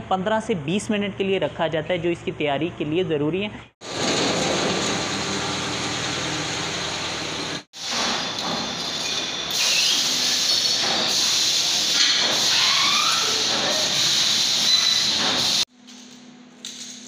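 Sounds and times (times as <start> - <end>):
factory machinery hissing: 3.8 - 15.7.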